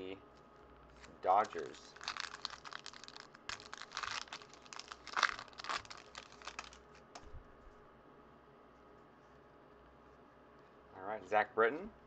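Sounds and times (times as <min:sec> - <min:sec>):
foil wrapper crinkling: 0:01.3 - 0:07.1.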